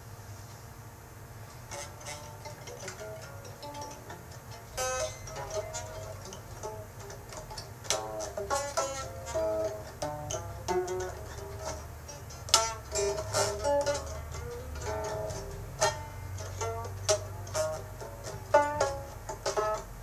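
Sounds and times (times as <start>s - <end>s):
plucked string instrument notes: 1.5s - 20.0s.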